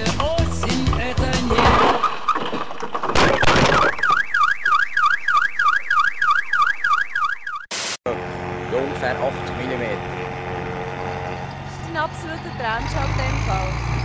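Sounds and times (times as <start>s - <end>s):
car alarm siren wailing: 3.3s - 7.7s.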